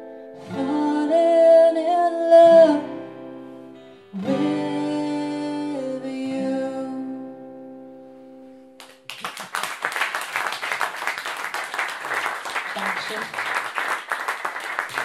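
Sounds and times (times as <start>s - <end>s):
acoustic guitar chord ringing: 0.0s - 8.8s
audience applause: 8.8s - 15.0s.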